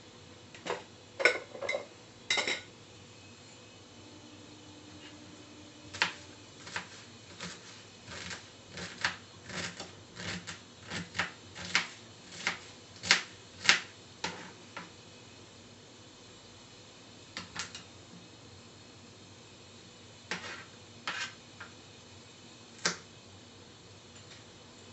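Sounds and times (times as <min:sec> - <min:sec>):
hot oil popping in a pan: 0:08.2 - 0:15.0, 0:17.3 - 0:18.0, 0:22.7 - 0:23.2.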